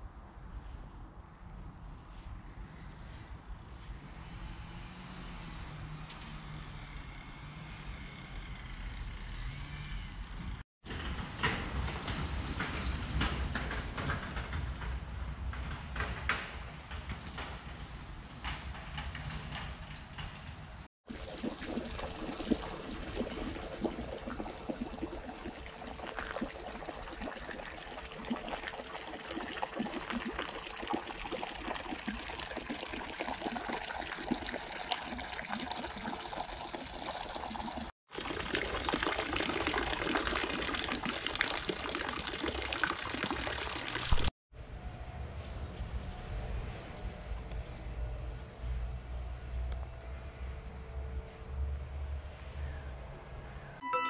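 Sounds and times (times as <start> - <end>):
fountain water splashing: 21.1 - 44.3.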